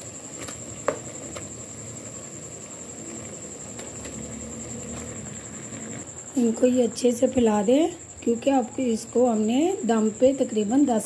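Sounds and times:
sauce bubbling and sizzling: 0:00.0 - 0:06.3.

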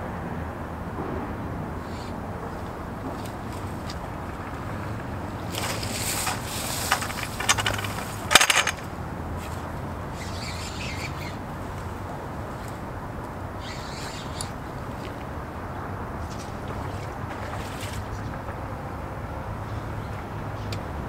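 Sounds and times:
fishing rod swish: 0:04.6 - 0:08.6, 0:09.4 - 0:12.8
reel being cranked: 0:05.6 - 0:08.9.

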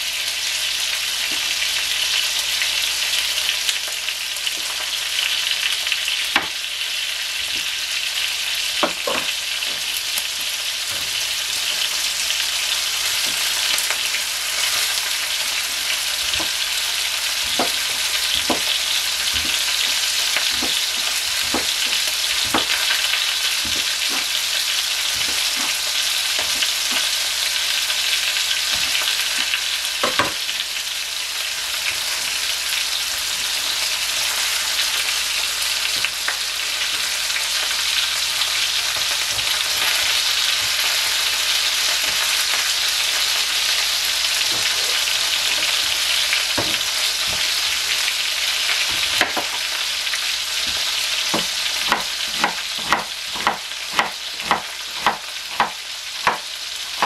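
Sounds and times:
knife chopping on cutting board: 0:08.8 - 0:09.9, 0:13.1 - 0:13.8, 0:15.6 - 0:16.6, 0:17.2 - 0:27.2, 0:28.7 - 0:30.5, 0:46.6 - 0:47.6, 0:48.8 - 0:49.6, 0:50.6 - 0:57.0.

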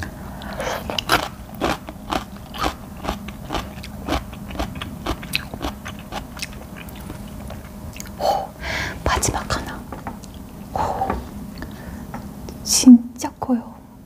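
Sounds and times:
close chewing with clicks: 0:00.4 - 0:08.2.

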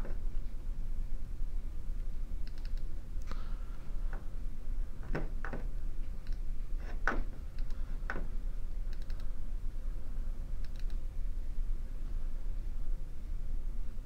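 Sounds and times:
steady low hum: 0:00.0 - 0:14.0
computer mouse clicks: 0:02.4 - 0:03.4, 0:06.2 - 0:07.8, 0:08.9 - 0:09.3, 0:10.6 - 0:11.0.

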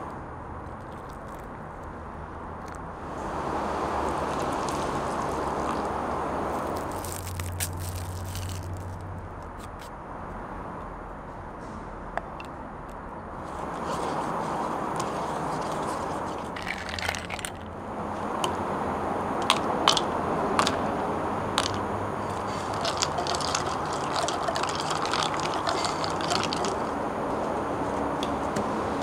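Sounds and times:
steady background noise: 0:00.0 - 0:29.0
ice rattling as stirred: 0:04.0 - 0:05.9, 0:06.6 - 0:08.9, 0:13.4 - 0:17.8, 0:21.6 - 0:27.0
ice cubes clinking into a cup: 0:15.2 - 0:17.7, 0:21.6 - 0:26.9.

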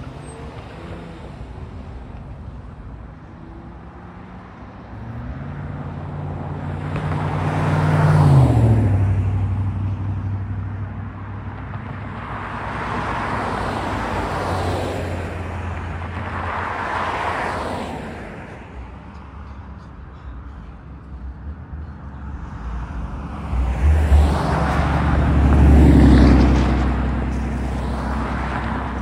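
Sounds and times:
highway traffic passing: 0:00.0 - 0:29.0
car passing close: 0:22.2 - 0:29.0.

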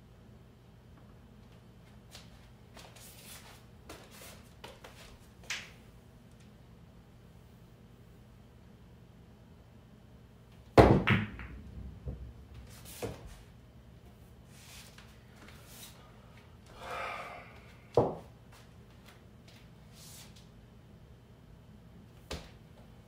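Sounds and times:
balls knocking against cushions: 0:10.8 - 0:12.2
billiard balls clacking: 0:10.8 - 0:13.2
pool cue striking ball: 0:10.8 - 0:13.4.

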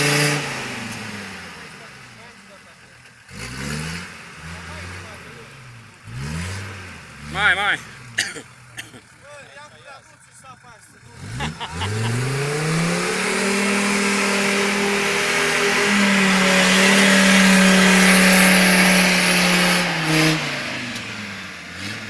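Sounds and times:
engine revving hard: 0:00.0 - 0:02.3, 0:03.3 - 0:08.2, 0:11.0 - 0:22.0.

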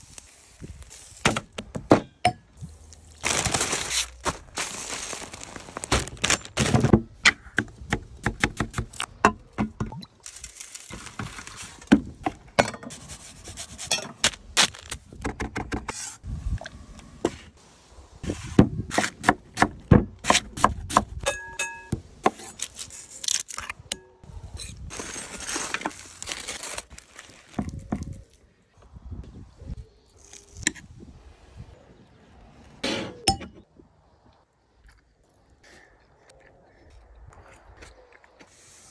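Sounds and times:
plastic bag crinkling: 0:02.7 - 0:06.9, 0:10.2 - 0:11.9, 0:24.9 - 0:28.4.

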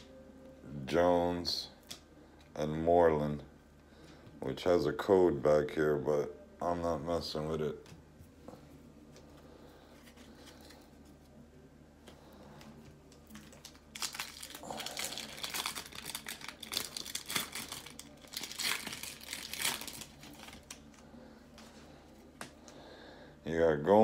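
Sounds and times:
foil wrapper tearing and crinkling: 0:13.2 - 0:21.0.

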